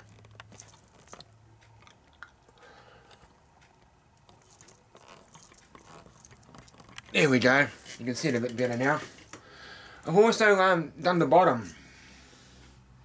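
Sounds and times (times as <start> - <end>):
camera handling clicks and rustles: 4.3 - 7.1.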